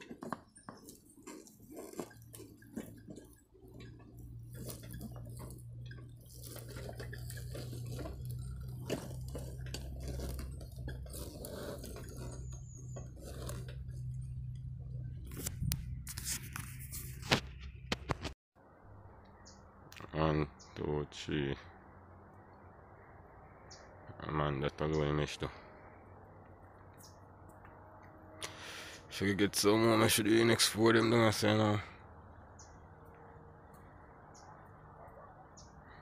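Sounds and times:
wheelchair moving over rough ground: 0.0s - 17.5s.

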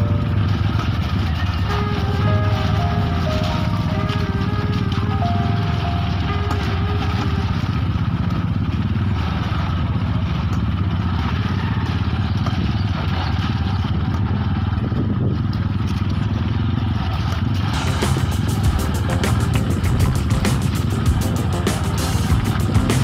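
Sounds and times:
small motorcycle engine running: 0.0s - 23.0s
noisy rushing: 17.6s - 23.0s.

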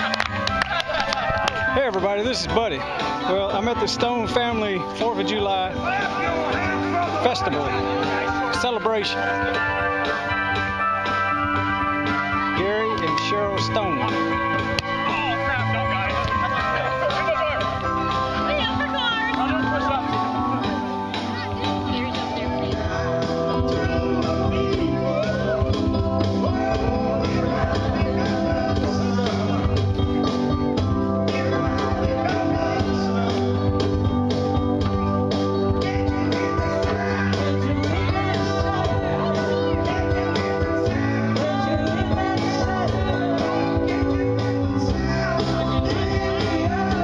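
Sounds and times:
instrumental accompaniment: 0.0s - 47.0s
man singing into a microphone: 22.8s - 30.3s, 31.2s - 33.9s, 35.7s - 47.0s.

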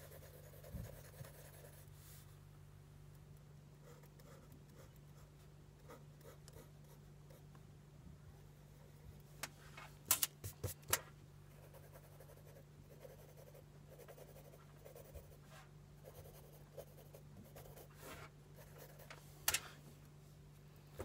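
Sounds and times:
pencil scratching on paper: 0.0s - 1.9s, 3.8s - 7.4s, 11.6s - 15.4s, 16.0s - 19.1s
steady low hum: 0.0s - 21.0s.

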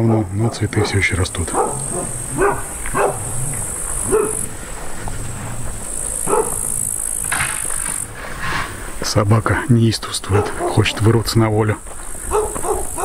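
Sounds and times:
dog barking: 0.4s - 4.5s, 6.2s - 6.7s, 10.2s - 11.1s, 12.3s - 13.0s.

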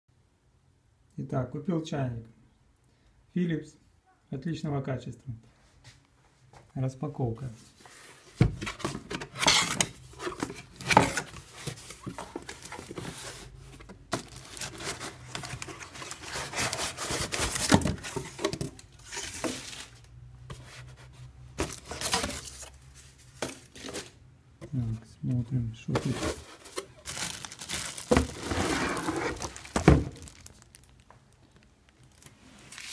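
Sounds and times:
cardboard scraping: 7.8s - 24.2s, 25.9s - 30.8s
plastic bag crinkling: 14.2s - 18.2s, 26.1s - 32.9s.

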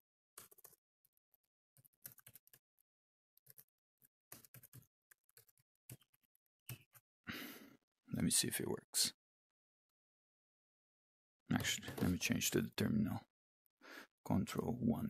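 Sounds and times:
typing on computer keyboard: 0.4s - 0.8s, 1.8s - 2.6s, 3.4s - 3.7s, 4.3s - 7.0s.

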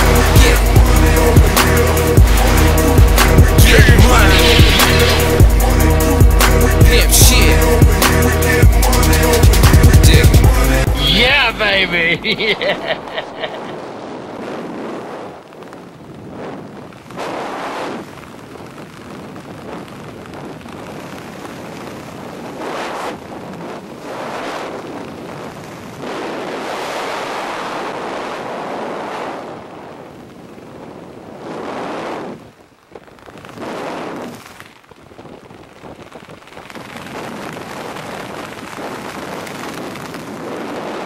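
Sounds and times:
wind on microphone: 13.2s - 41.0s.

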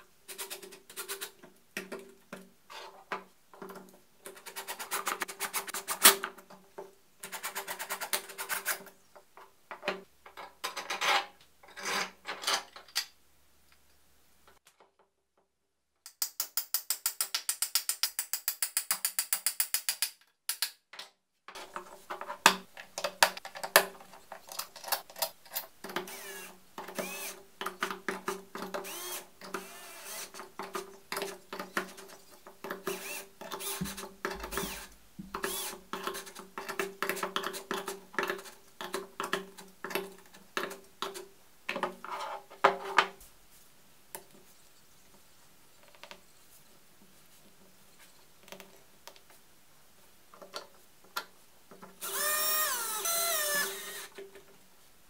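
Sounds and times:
screwdriver driving screws: 24.5s - 27.9s, 28.6s - 31.8s, 32.7s - 36.4s, 52.0s - 54.2s.

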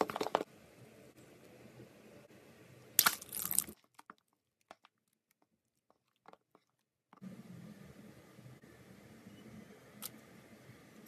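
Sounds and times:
faint room noise: 0.0s - 4.0s.

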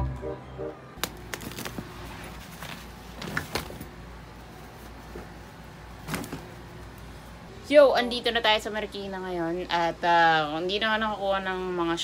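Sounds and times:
plastic bags rustling: 1.0s - 4.0s.

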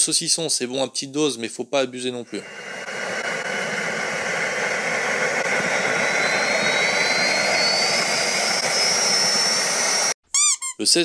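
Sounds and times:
jet engine spooling up: 2.2s - 10.2s.

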